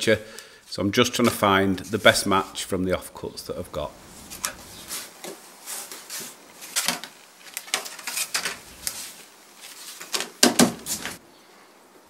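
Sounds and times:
wood veneer rustling: 3.6s - 11.2s.

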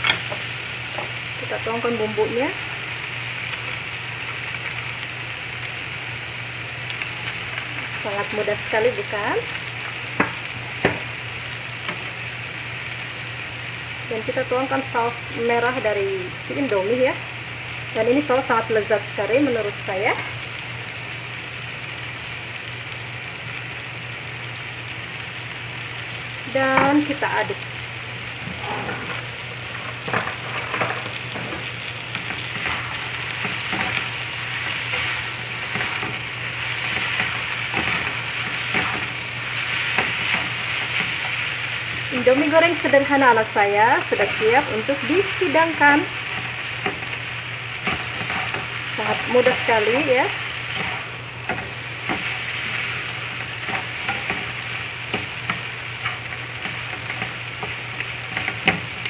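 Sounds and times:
noodles sizzling in frying pan: 0.0s - 59.0s
wooden spatulas scraping a pan: 28.4s - 42.0s, 47.8s - 49.7s.

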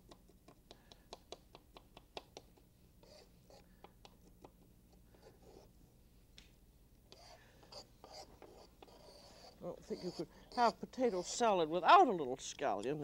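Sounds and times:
soft brushing scrapes on board: 7.2s - 11.4s.

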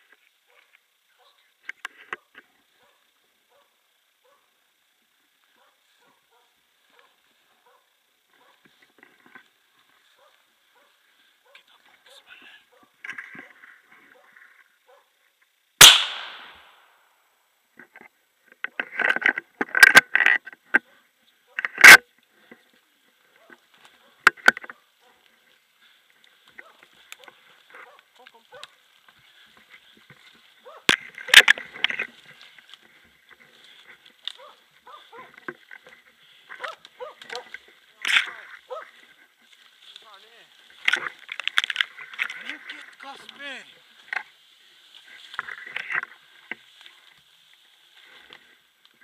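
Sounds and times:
rifle shots with echo: 15.8s - 16.8s.

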